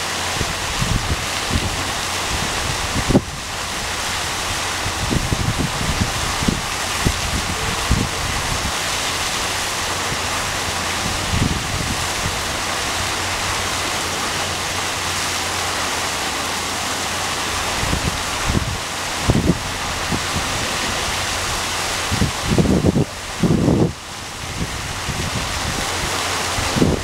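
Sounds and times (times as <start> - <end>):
low splashes: 0.0 - 27.0
waterfall pouring into pool: 0.0 - 27.0.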